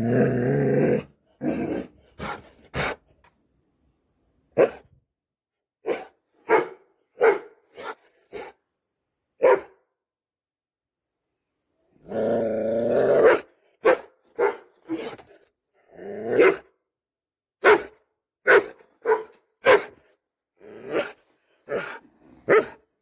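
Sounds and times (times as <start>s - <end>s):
dog barking: 4.6s - 4.9s, 5.8s - 8.5s, 9.4s - 9.8s, 13.2s - 15.2s, 16.4s - 16.7s, 17.6s - 20.1s, 21.0s - 22.8s.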